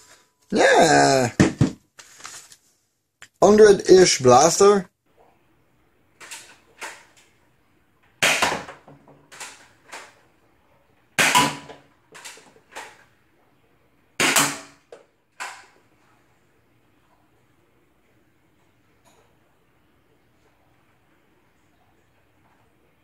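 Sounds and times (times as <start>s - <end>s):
toy blaster shot pop: 8.2s - 8.7s, 11.2s - 11.8s.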